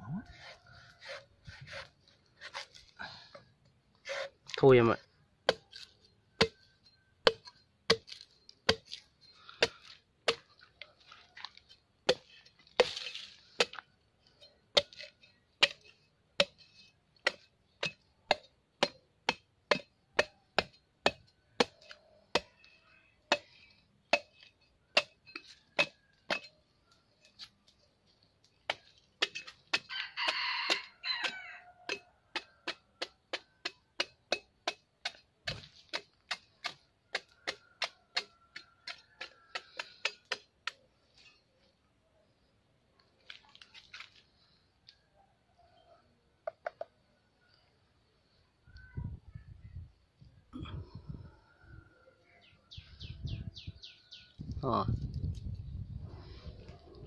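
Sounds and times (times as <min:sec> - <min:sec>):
machete chopping coconut husk: 0:05.4 - 0:06.6, 0:07.2 - 0:10.6, 0:12.0 - 0:13.9, 0:14.7 - 0:22.7, 0:23.3 - 0:23.5, 0:24.1 - 0:26.6, 0:28.6 - 0:40.9
rooster crowing: 0:29.9 - 0:32.1.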